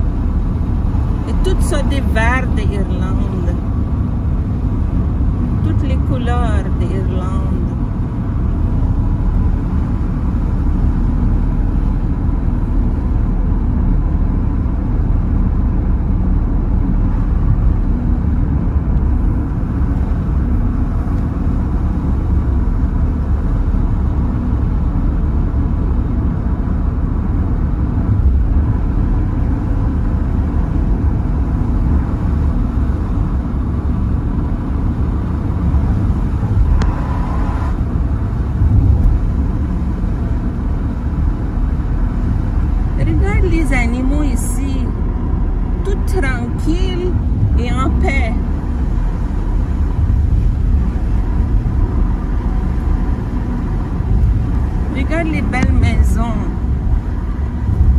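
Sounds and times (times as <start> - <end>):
car engine and tyre noise: 0.0 - 57.9.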